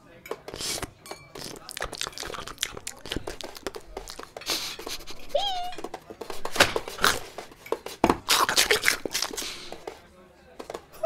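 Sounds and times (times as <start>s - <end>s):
crunching bites: 0.5s - 4.4s, 8.2s - 9.6s
cartoon dog sniffing: 4.2s - 5.4s.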